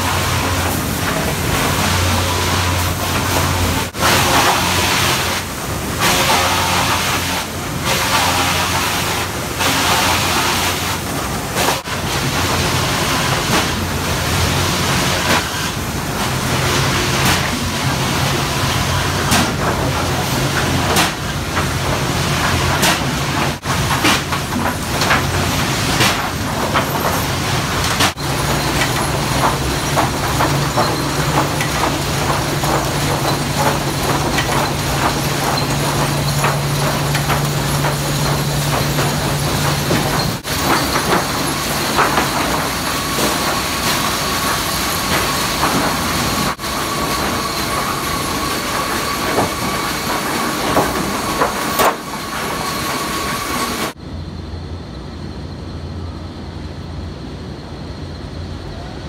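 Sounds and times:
steady machine hum: 0.0 - 59.0
boards clattering on conveyors: 19.3 - 54.0.

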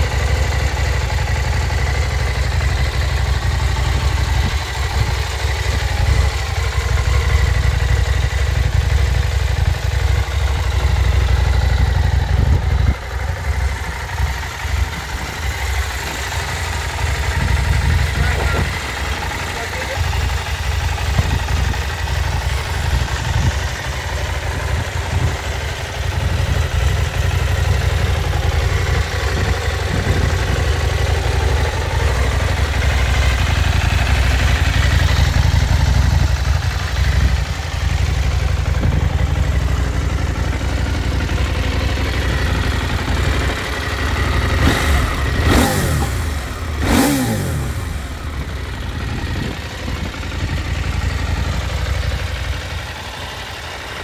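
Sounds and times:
motorcycle engine idling: 0.0 - 54.0
engine throttle blips: 42.0 - 50.6.

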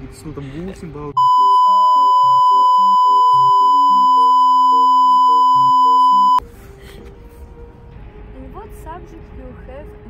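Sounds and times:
censor bleep: 1.2 - 6.4.

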